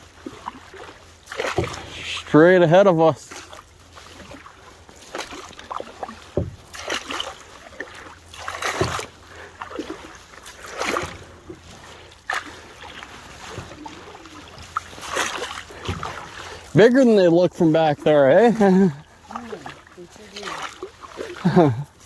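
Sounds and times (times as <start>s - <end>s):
paddle splashing through water: 0.0s - 22.0s
paddle knocks: 0.3s - 2.3s, 3.3s - 17.2s.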